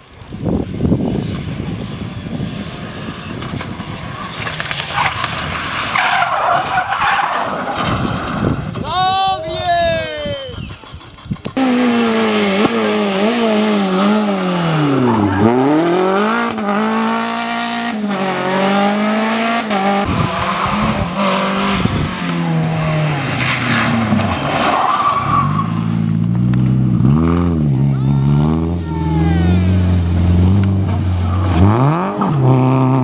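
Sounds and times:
rally car engine revving: 11.6s - 33.0s.

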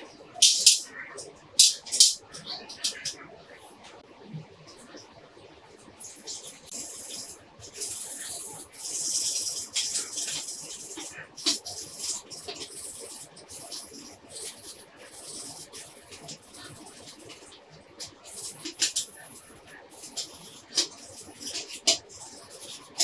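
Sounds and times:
wet sandpaper scraping plastic: 6.2s - 23.0s.

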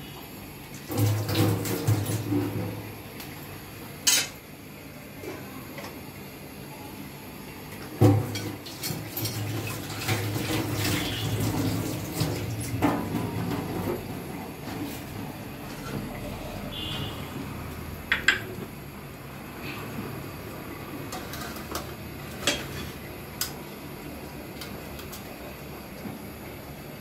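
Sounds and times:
tap water running into sink: 0.9s - 2.6s, 8.0s - 14.1s.

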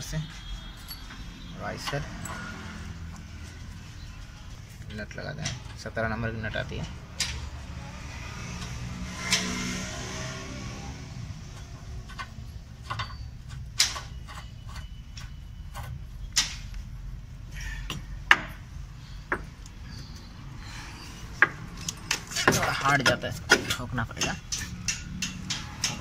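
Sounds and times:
metallic clicks and taps: 21.4s - 26.0s.

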